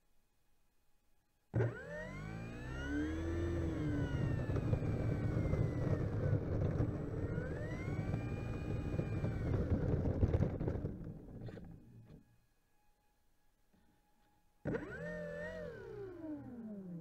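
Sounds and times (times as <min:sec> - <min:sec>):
electric motor whining: 0:01.6 - 0:12.2, 0:14.6 - 0:17.0
wheels rolling on pavement: 0:03.2 - 0:11.8.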